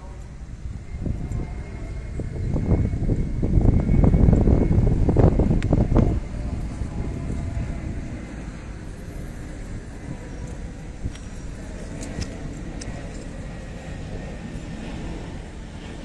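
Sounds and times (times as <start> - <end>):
distant road traffic rumble: 0.0 - 16.0
wind on microphone: 0.0 - 16.0.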